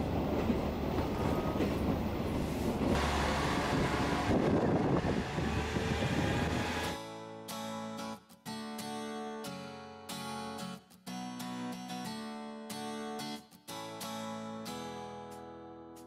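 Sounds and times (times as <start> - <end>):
train running noise: 0.0 - 7.0
diesel railcar engine idling: 2.0 - 6.8
acoustic guitar music: 6.8 - 16.0.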